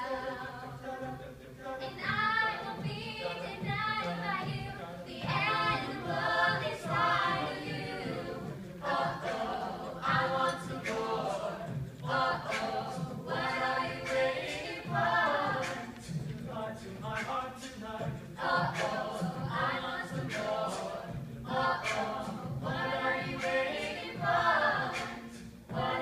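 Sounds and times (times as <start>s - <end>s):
group singing in harmony: 0.0s - 26.0s
beatboxing clicks: 15.5s - 19.2s, 21.8s - 22.4s, 24.9s - 25.6s.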